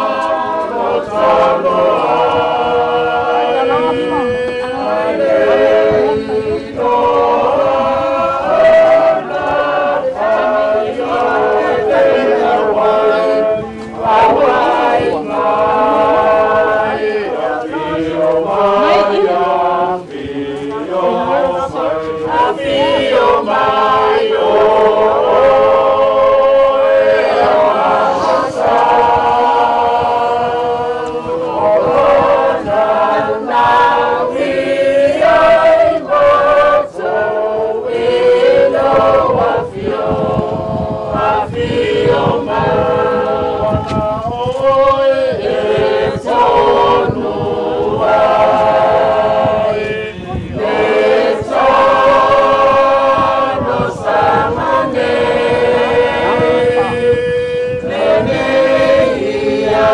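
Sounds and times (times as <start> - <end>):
choir singing unaccompanied: 0.0 - 59.9.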